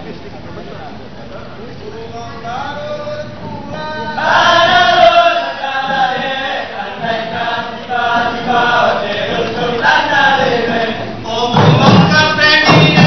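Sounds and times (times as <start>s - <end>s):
men chanting in unison: 2.6s - 13.0s.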